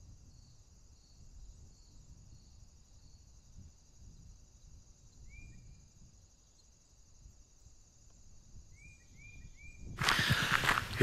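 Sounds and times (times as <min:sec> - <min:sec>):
insects trilling: 0:00.3 - 0:11.0
low wind rumble: 0:08.6 - 0:11.0.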